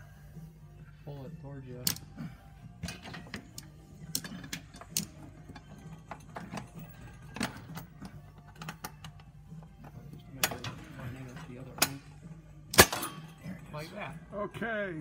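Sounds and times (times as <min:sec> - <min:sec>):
metallic clicks of bolts being fitted: 0:01.8 - 0:02.1, 0:02.8 - 0:09.3.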